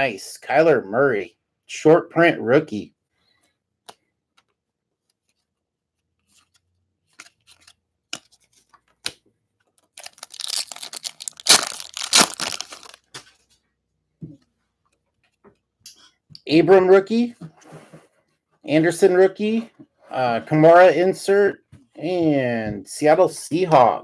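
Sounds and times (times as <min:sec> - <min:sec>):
wrapper crinkling and tearing: 0:09.9 - 0:13.1.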